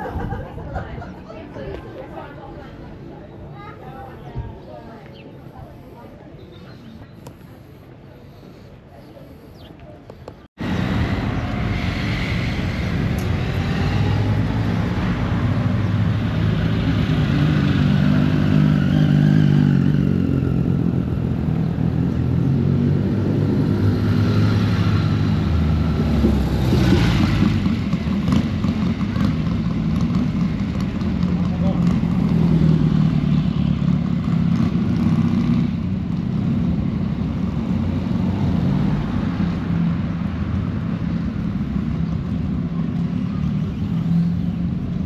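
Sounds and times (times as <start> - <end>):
motorcycle engines running: 9.0 - 45.0.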